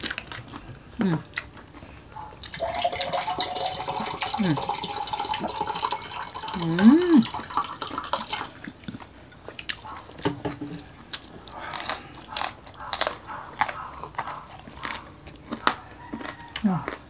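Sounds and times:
person chewing food: 0.0s - 5.9s, 6.5s - 17.0s
wet mouth clicks and crunches: 11.1s - 17.0s.

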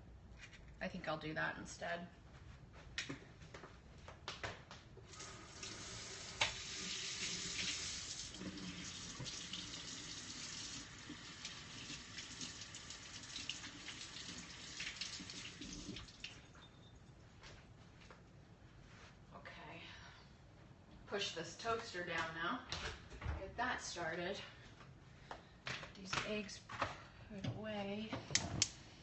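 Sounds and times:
tap water running into sink: 5.1s - 16.4s.

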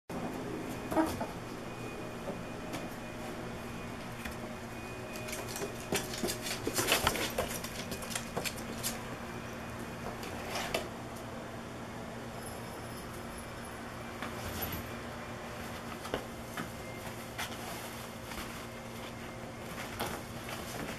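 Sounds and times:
steady low hum: 0.1s - 20.9s
ferrets scrabbling and rustling: 5.1s - 9.2s, 17.0s - 20.9s.

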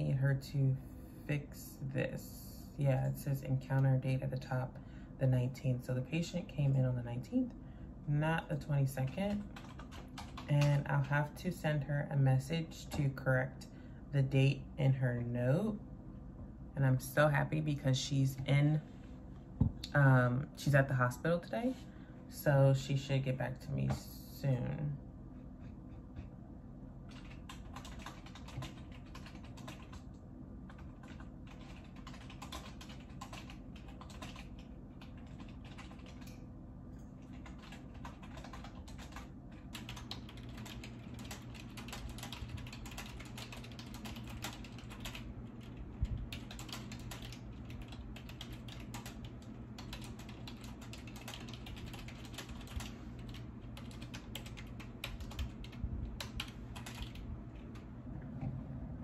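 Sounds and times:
low steady hum: 0.0s - 59.0s
computer keyboard typing: 9.0s - 11.2s, 27.1s - 36.4s, 37.2s - 57.8s.

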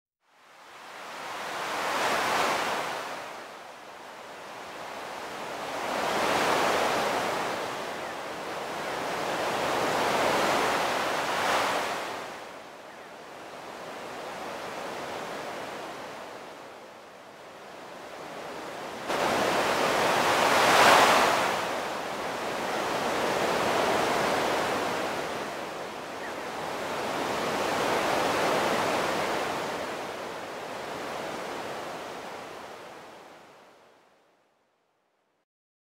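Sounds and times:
sea waves washing ashore: 0.4s - 33.8s.

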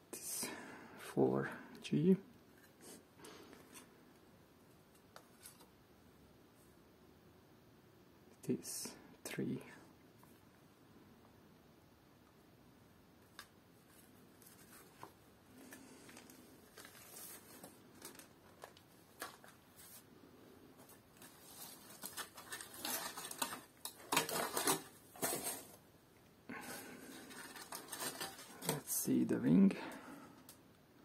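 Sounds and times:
cardboard packing filler rustling: 14.0s - 20.1s, 20.8s - 25.8s, 27.0s - 28.9s.

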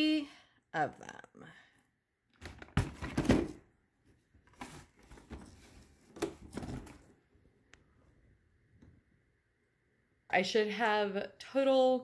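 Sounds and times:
cardboard packaging rustling: 4.4s - 7.2s.

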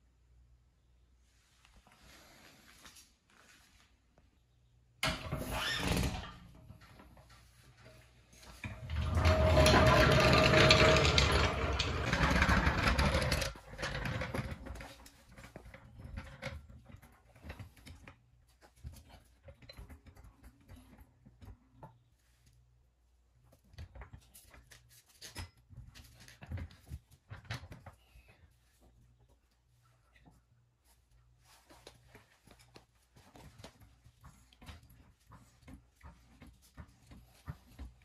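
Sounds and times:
floor jack rolling on concrete: 8.4s - 16.8s.

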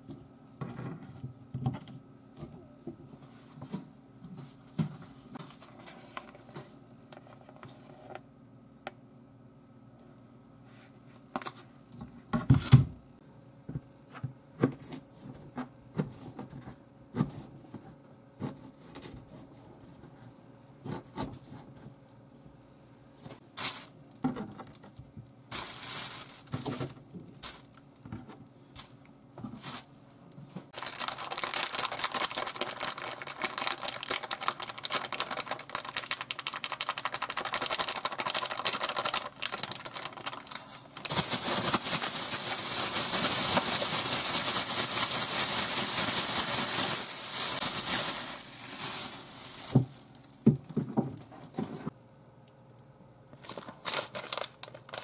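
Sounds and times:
plastic bag rustling and crinkling: 23.4s - 29.9s, 30.7s - 51.9s, 53.4s - 55.0s.

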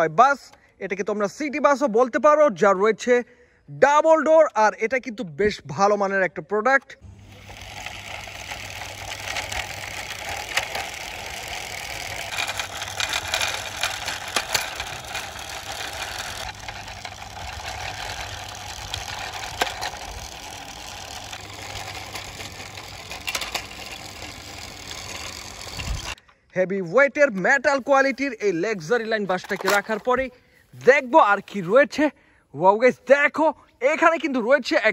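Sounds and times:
toy wheels rolling on stone: 7.2s - 26.2s, 27.6s - 30.3s.

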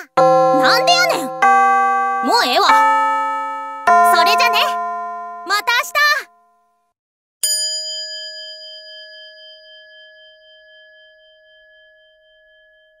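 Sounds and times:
struck bell ringing: 0.2s - 6.4s.

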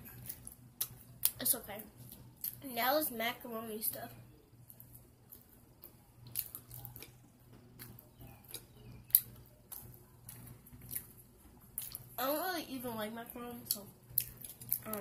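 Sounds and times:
wet chewing and lip smacks: 2.0s - 2.6s, 4.6s - 12.2s, 13.7s - 15.0s.

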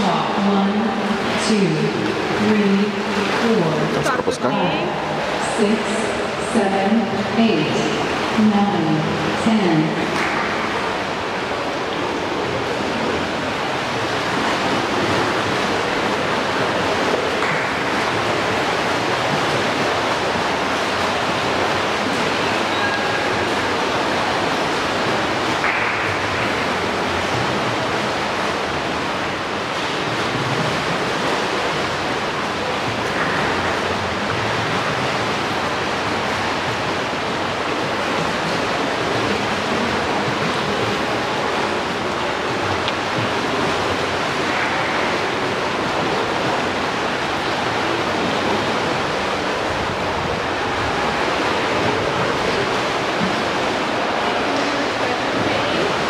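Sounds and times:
water washing in a pool: 0.0s - 56.0s.

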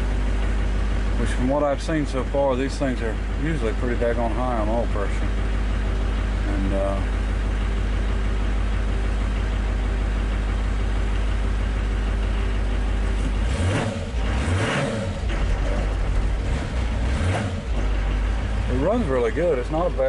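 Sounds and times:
diesel truck engine idling: 0.0s - 20.0s
person talking: 6.4s - 7.1s
engine revving: 12.7s - 20.0s.

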